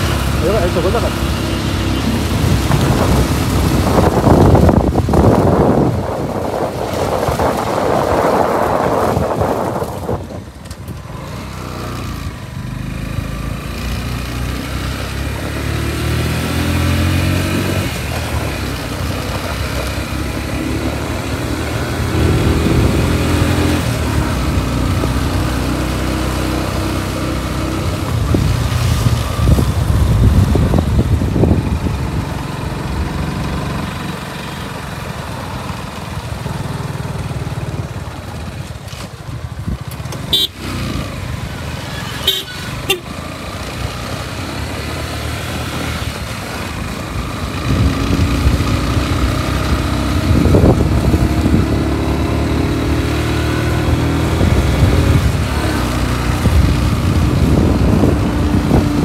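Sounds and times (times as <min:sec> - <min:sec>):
vehicle engine running: 0:00.0 - 0:07.5
wind buffeting microphone: 0:01.2 - 0:11.5, 0:16.0 - 0:34.1, 0:47.0 - 0:59.0.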